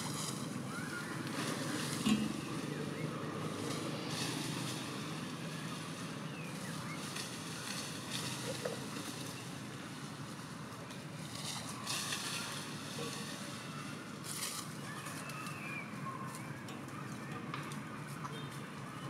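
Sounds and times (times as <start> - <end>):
low rumbling haze: 0.0 - 14.5.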